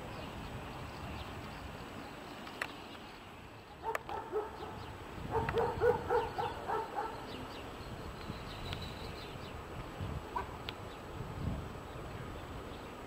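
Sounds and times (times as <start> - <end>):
dog barking: 3.8 - 7.3.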